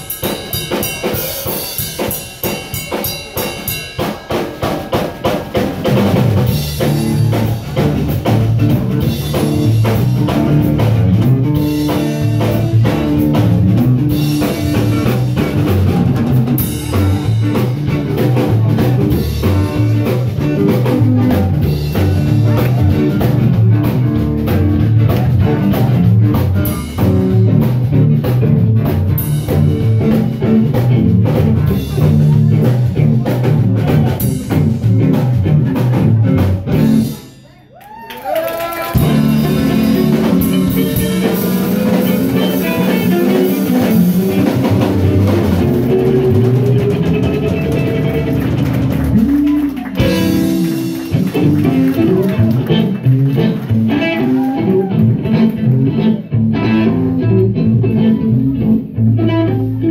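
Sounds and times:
bass guitar: 0:00.0 - 0:59.9
drum kit: 0:00.0 - 0:59.9
electric guitar: 0:03.4 - 0:37.4, 0:38.1 - 0:59.9.

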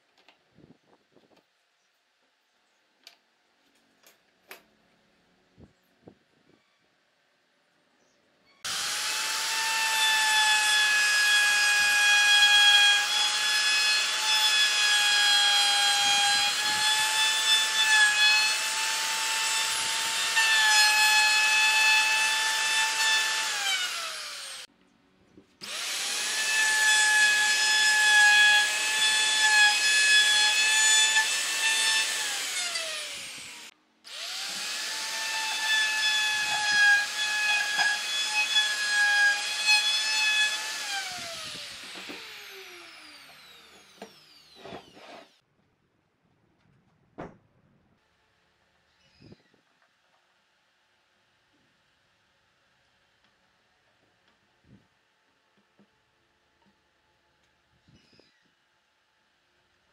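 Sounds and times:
router whining cutting wood: 0:08.6 - 0:24.7, 0:25.6 - 0:45.4.

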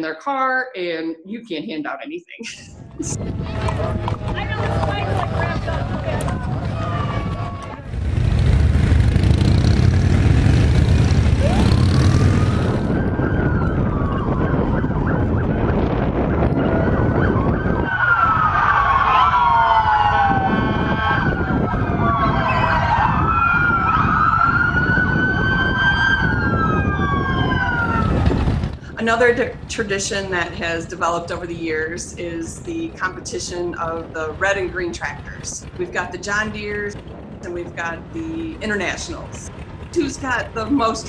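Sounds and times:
sirens wailing: 0:03.2 - 0:08.2, 0:09.1 - 0:28.8.

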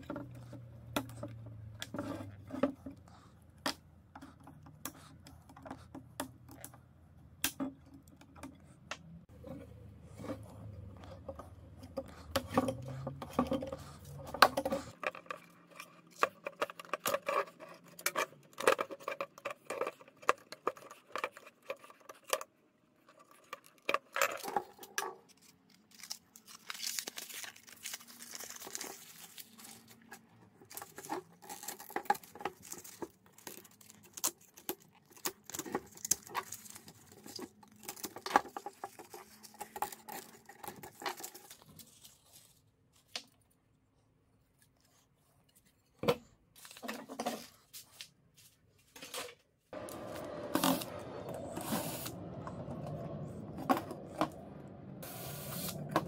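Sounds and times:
rustling and scraping: 0:00.0 - 0:03.4.

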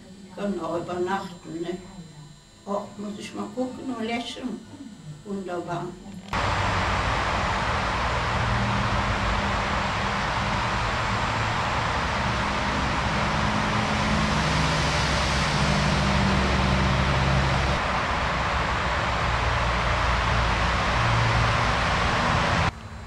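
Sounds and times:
low drone: 0:06.3 - 0:23.0
steady rushing roar: 0:06.3 - 0:23.0.

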